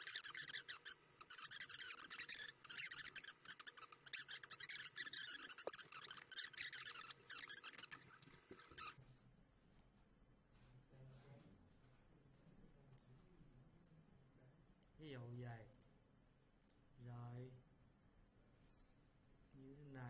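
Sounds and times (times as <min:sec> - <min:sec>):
crackling static: 0:00.0 - 0:09.0
faint low hum: 0:00.0 - 0:20.0.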